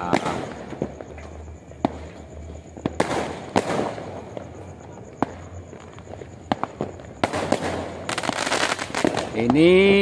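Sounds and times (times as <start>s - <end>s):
fireworks and firecrackers banging: 0.0s - 10.0s.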